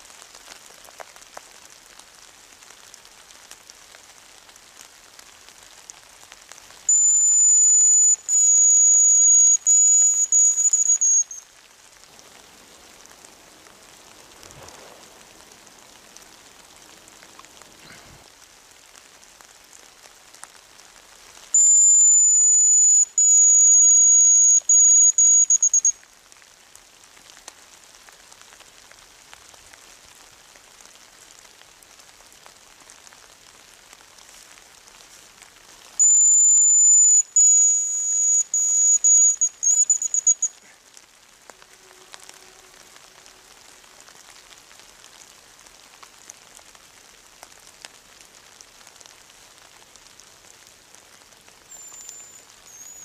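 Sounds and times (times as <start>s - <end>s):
light drizzle hissing: 0.0s - 53.0s
grouse high thin whistle: 6.9s - 11.5s, 21.6s - 26.0s, 36.0s - 40.8s, 51.7s - 53.0s.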